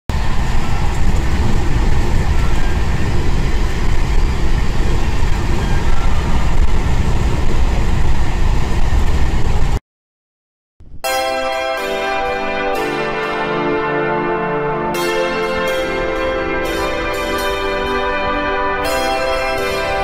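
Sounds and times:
engine and road noise: 0.1s - 9.8s.

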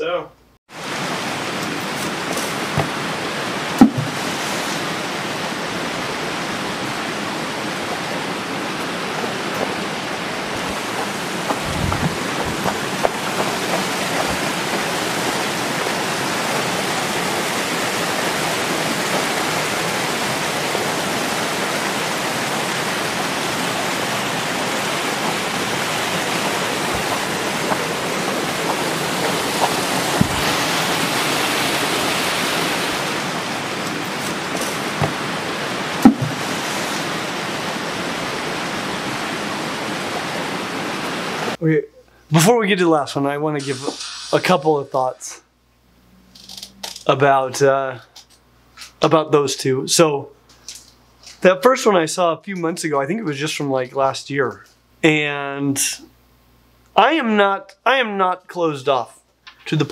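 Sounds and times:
steady rushing hiss: 0.8s - 42.4s, 43.2s - 45.5s.

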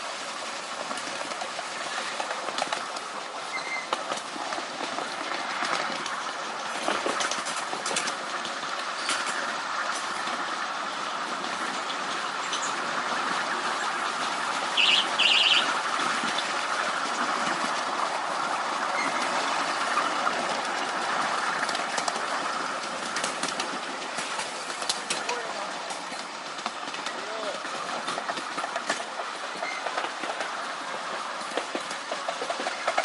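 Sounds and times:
small train wheels rumbling on rails: 0.0s - 33.0s.

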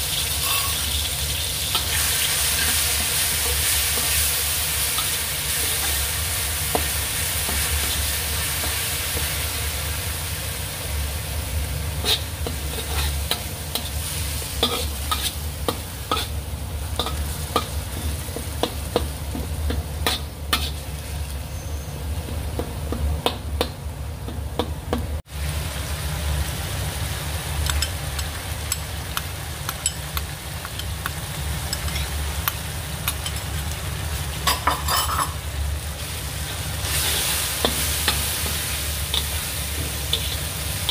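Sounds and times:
sambal sizzling in hot oil: 0.0s - 40.9s
spatula scraping a pan: 0.4s - 0.9s, 12.0s - 16.4s, 20.0s - 22.0s.

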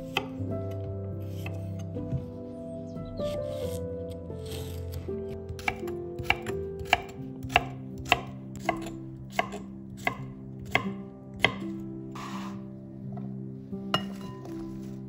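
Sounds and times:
knife chopping on wooden board: 5.5s - 12.6s.

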